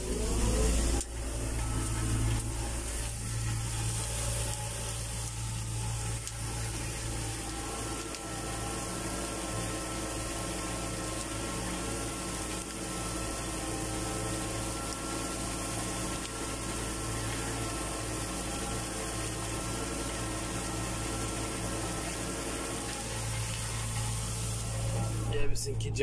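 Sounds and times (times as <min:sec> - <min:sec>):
thin high whine: 0:00.0 - 0:06.1, 0:23.3 - 0:26.0
tractor engine running under load: 0:00.0 - 0:26.0.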